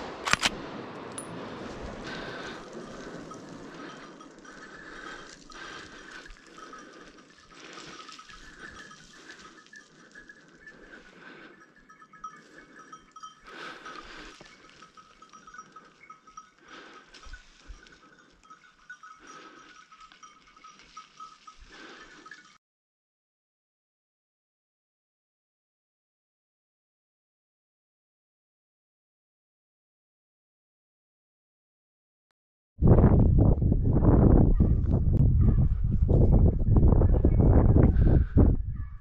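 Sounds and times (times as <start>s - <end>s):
small bells jingling faintly: 2.0s - 22.6s.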